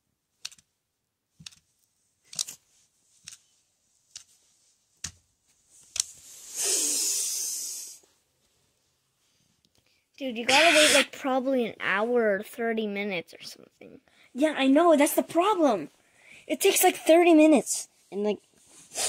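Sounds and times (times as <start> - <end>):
loud rushing hiss: 6.5 - 8.0.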